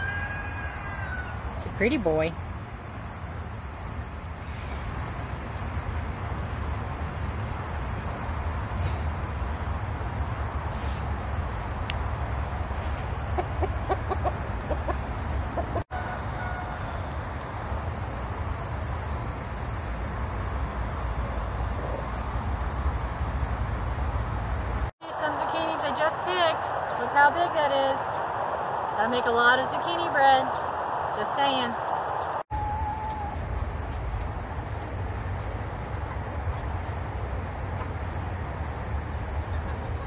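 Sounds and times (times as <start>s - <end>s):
insect drone: 0.0s - 40.0s
rooster clucking: 13.0s - 17.0s.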